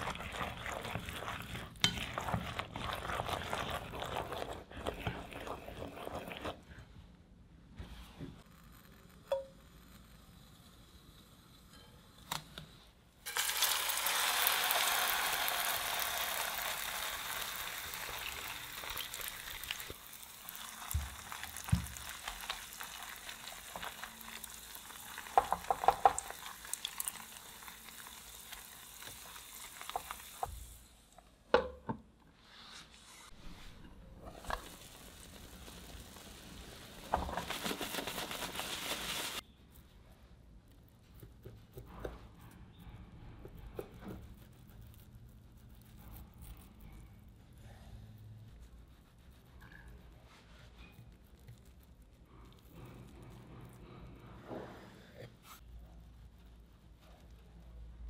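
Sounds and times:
batter sizzling in hot oil: 0:00.0 - 0:06.5, 0:13.2 - 0:31.0, 0:33.4 - 0:39.4.

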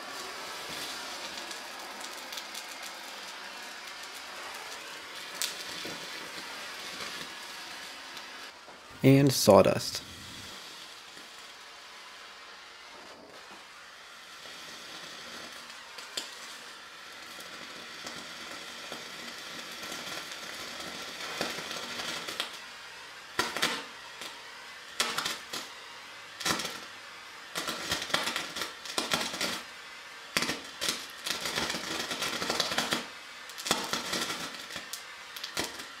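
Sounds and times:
gas torch hissing: 0:00.0 - 0:36.0
sharp pops and bursts: 0:23.4 - 0:24.4, 0:25.0 - 0:25.8, 0:27.5 - 0:29.6, 0:30.4 - 0:35.9.

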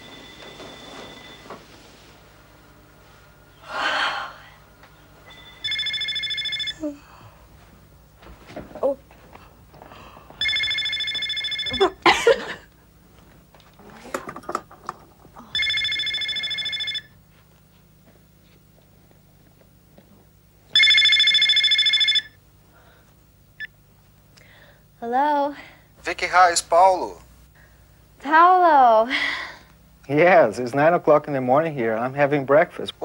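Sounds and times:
telephone ringing: 0:00.0 - 0:01.6, 0:05.3 - 0:06.8, 0:10.4 - 0:12.0, 0:15.5 - 0:17.2, 0:20.8 - 0:22.4.

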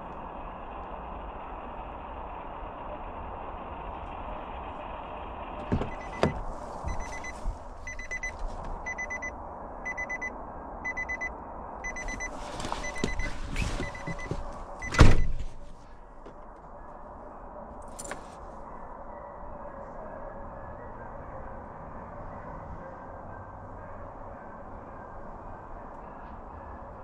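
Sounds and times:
car door slamming shut: 0:05.6 - 0:07.5, 0:12.6 - 0:15.6
car door opening clicks: 0:05.6 - 0:09.0, 0:12.0 - 0:15.6, 0:17.9 - 0:18.4
door warning chime dinging: 0:05.6 - 0:09.3, 0:09.9 - 0:10.3, 0:10.9 - 0:11.3, 0:11.9 - 0:15.4.

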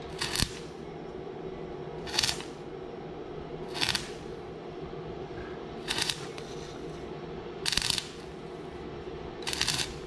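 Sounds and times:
welding arc crackling: 0:00.0 - 0:00.8, 0:02.0 - 0:02.7, 0:03.6 - 0:04.4, 0:05.8 - 0:06.9, 0:07.6 - 0:08.5, 0:09.4 - 0:10.0
welder low hum: 0:00.0 - 0:10.0.

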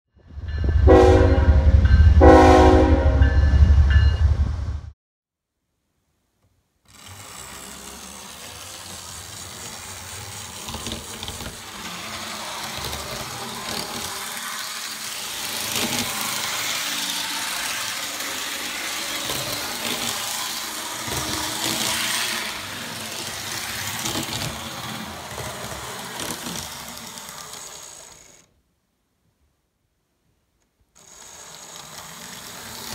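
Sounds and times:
model train wheels on rails: 0:06.4 - 0:28.6, 0:30.6 - 0:32.9
model train motor whirring: 0:06.8 - 0:28.6, 0:31.0 - 0:32.9.

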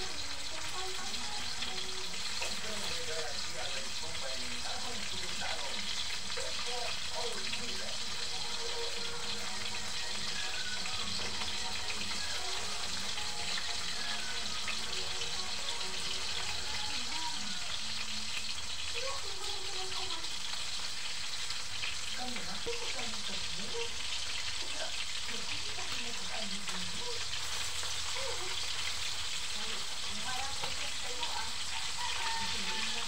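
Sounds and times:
food sizzling in hot oil: 0:00.0 - 0:33.0.

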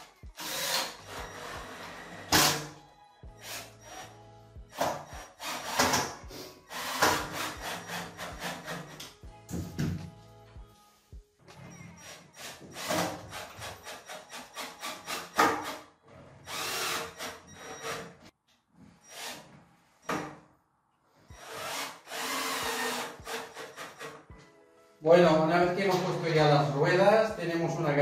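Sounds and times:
cordless drill driving screws: 0:00.4 - 0:02.6, 0:16.4 - 0:18.1, 0:21.4 - 0:24.1.

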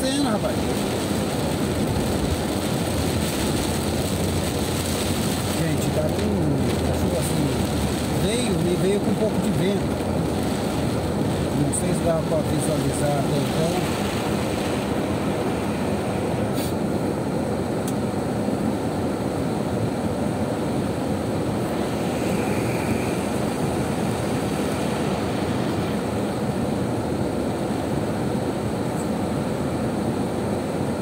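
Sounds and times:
heavy rain on car roof: 0:00.0 - 0:16.6, 0:21.2 - 0:28.7.

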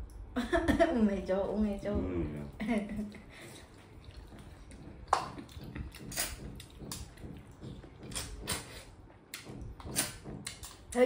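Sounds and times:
chewing smacks: 0:03.2 - 0:11.0.

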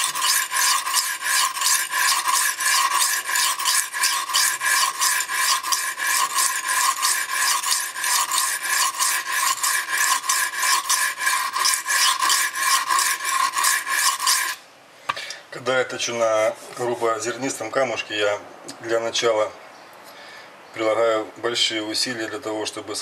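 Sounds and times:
knife scraping on sharpening stone: 0:00.0 - 0:14.6.

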